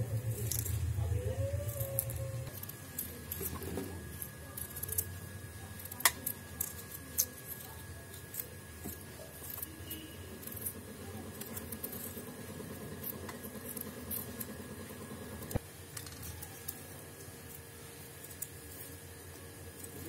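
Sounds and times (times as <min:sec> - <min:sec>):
knife scraping potato skin: 0:00.0 - 0:14.7.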